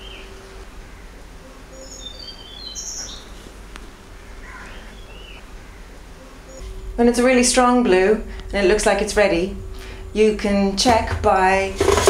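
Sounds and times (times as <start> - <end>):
bird chirping: 0.0 - 3.5, 4.2 - 6.9
low steady hum: 0.0 - 12.0.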